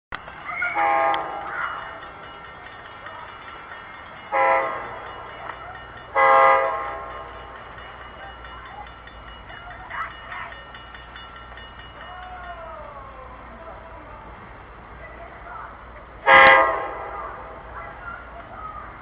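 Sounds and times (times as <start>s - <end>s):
locomotive air horn blasts: 0.8s - 1.5s, 4.3s - 4.8s, 6.2s - 7.1s, 16.2s - 17.6s.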